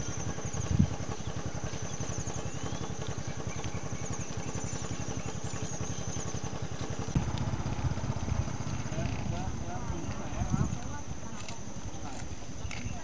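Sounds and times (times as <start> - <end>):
small engine idling: 0.0 - 13.0.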